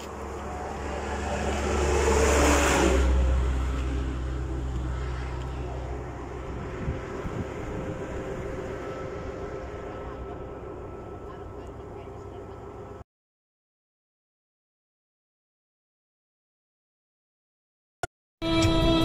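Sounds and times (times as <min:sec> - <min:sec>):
vehicle passing at speed: 0:00.0 - 0:12.9
road rumble: 0:00.0 - 0:13.0.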